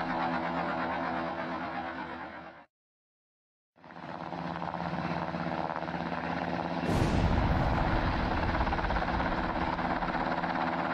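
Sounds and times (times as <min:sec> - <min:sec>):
helicopter rotor drone: 0:00.0 - 0:02.7, 0:03.8 - 0:10.9
bomb explosion: 0:06.8 - 0:10.2
deep low rumble: 0:06.9 - 0:10.4.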